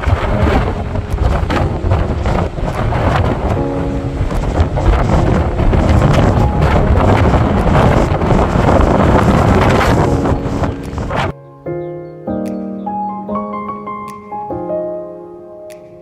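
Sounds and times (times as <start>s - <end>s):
sea waves breaking on rocks: 0.0s - 11.3s
wind buffeting microphone: 0.0s - 11.4s.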